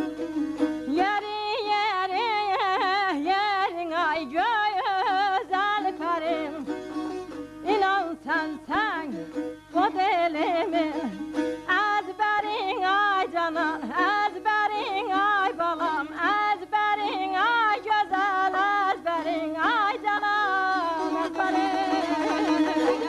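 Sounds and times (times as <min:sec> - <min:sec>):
woman singing ornamented melody: 0:00.9 - 0:06.7, 0:07.6 - 0:23.0
long-necked lute drone: 0:21.0 - 0:23.0.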